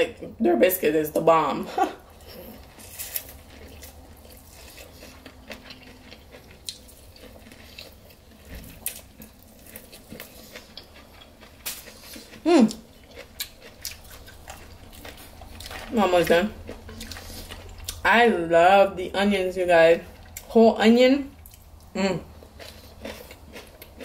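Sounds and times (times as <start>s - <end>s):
person chewing and lip-smacking: 2.1s - 16.0s, 16.6s - 18.0s, 21.4s - 24.0s
woman humming: 21.9s - 22.3s.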